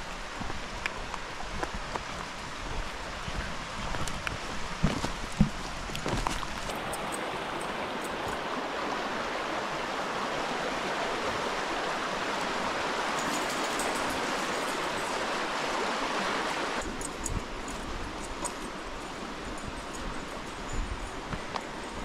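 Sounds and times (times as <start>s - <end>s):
stream rushing over stones: 0.0s - 22.0s.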